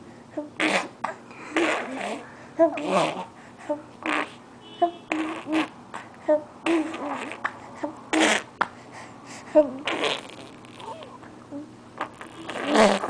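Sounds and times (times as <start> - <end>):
baby cooing: 0.5 - 3.8, 5.1 - 8.5, 9.6 - 13.0
baby blowing raspberries: 0.6 - 3.4, 4.0 - 4.4, 5.1 - 6.1, 6.7 - 8.6, 9.6 - 11.3, 12.0 - 13.0.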